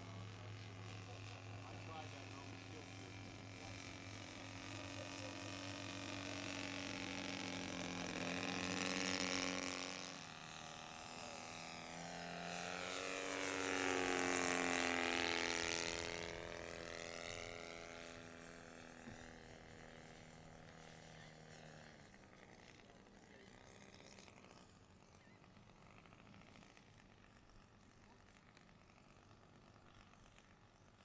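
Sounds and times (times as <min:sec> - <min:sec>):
model plane engine flying by: 0:00.0 - 0:31.0.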